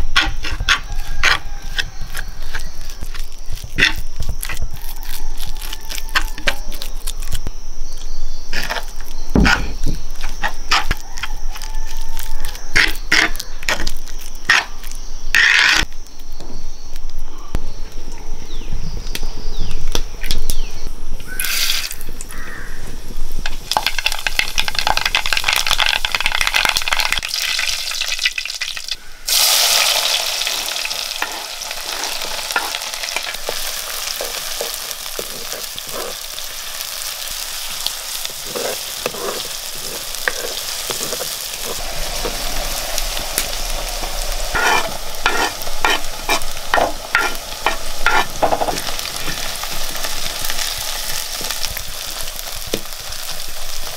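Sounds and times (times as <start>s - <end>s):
spatula stirring: 0.0s - 6.6s, 30.6s - 42.5s, 44.5s - 49.8s
hot oil sizzling in a pan: 21.3s - 22.6s, 23.4s - 53.9s.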